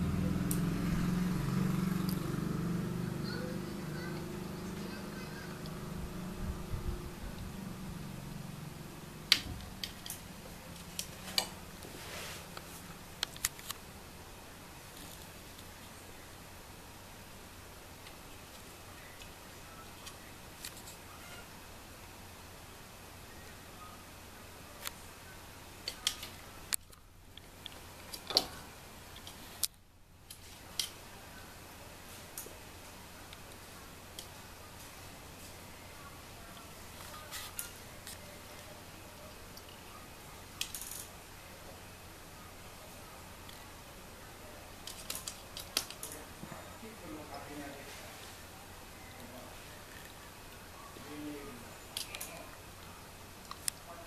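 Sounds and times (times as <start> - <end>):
soft rustle: 9.9 - 13.9, 34.3 - 39.8, 46.1 - 48.6.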